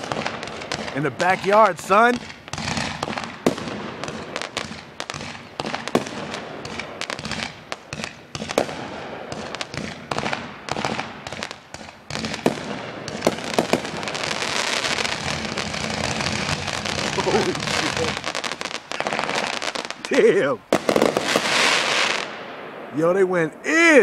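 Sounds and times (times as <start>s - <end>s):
firework bangs and pops: 0.0s - 22.9s
firework crackling: 0.0s - 24.0s.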